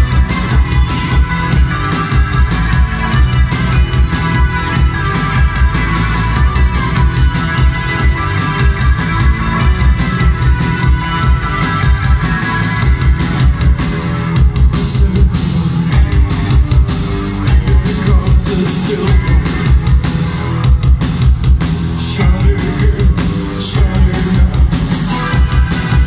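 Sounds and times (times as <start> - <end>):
live rock band playing: 0.0 - 26.0
person singing: 14.7 - 16.2, 17.5 - 19.5, 22.0 - 26.0.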